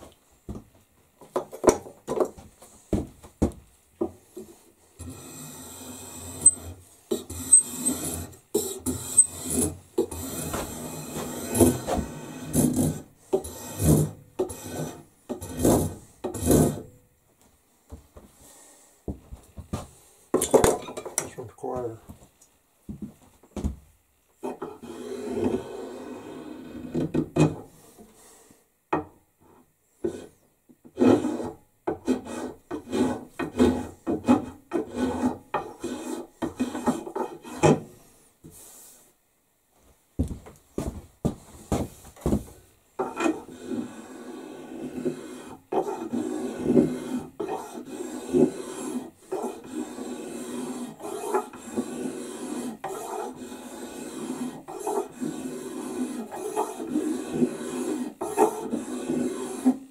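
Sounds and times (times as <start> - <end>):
hand tool rasping wood: 4.0 - 16.8, 31.0 - 37.8, 43.0 - 59.9.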